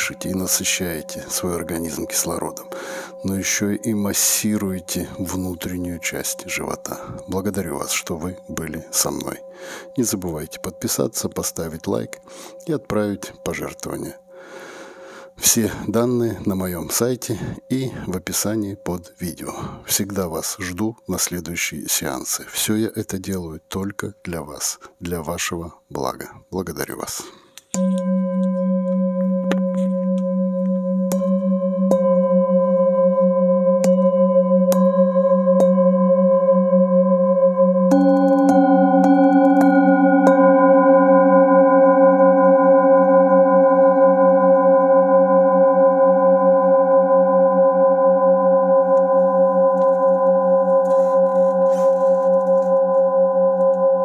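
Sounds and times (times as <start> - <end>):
singing bowls ringing: 0.0 - 11.2, 27.7 - 54.0.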